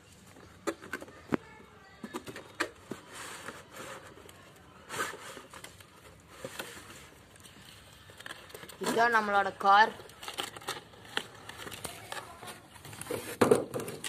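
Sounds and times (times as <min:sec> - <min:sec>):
box scraping and rustling: 0:02.8 - 0:09.4, 0:10.2 - 0:14.0
cardboard boxes tapping and knocking: 0:13.0 - 0:14.0.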